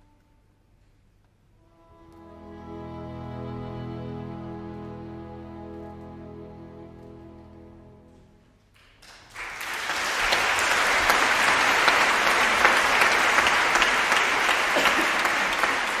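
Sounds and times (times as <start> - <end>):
slow instrumental music: 1.6 - 8.7
audience applause: 9.0 - 16.0.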